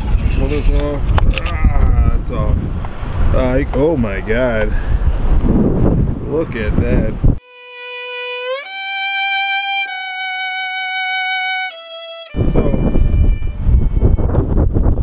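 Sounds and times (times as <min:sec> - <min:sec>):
wind buffeting microphone: 0:00.0 - 0:07.4, 0:12.3 - 0:15.0
solo violin note sliding up: 0:07.4 - 0:14.5.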